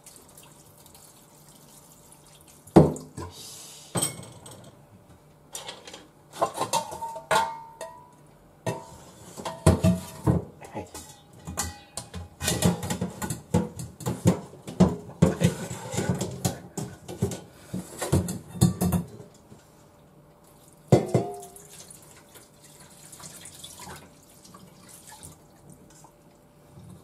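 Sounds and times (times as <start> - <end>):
water dripping and pouring: 0.0 - 3.2, 20.5 - 26.5
metal bowl clanking: 10.9 - 17.3, 20.9 - 21.6
water splashing and draining: 21.4 - 26.2.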